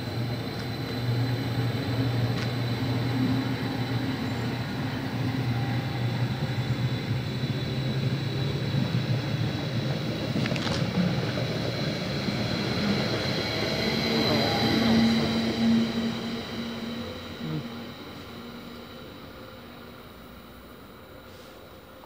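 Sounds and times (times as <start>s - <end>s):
train wheels rumbling on rails: 0.0s - 22.0s
thin high tone: 11.9s - 19.8s.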